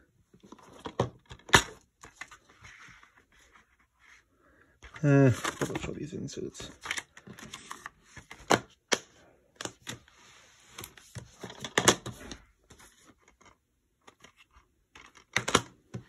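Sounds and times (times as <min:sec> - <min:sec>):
plastic cases clicking and clacking: 0:00.4 - 0:02.4, 0:10.8 - 0:12.3, 0:13.0 - 0:16.0.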